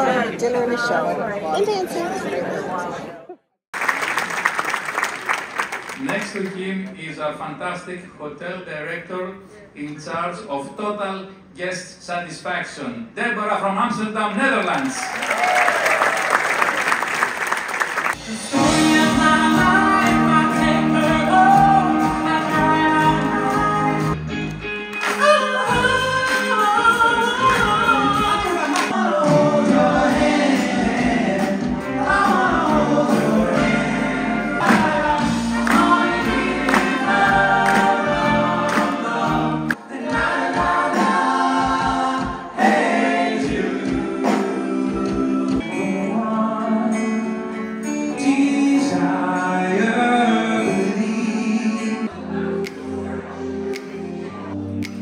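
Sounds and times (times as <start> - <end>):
group singing in harmony: 18.2 - 24.2, 25.2 - 54.2
pop backing music: 18.2 - 55.0.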